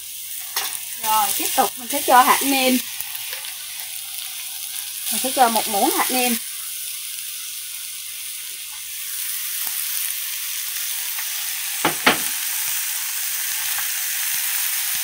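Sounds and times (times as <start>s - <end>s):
mushrooms sizzling in oil: 0.0s - 15.0s
utensils knocking on wok: 11.8s - 12.4s.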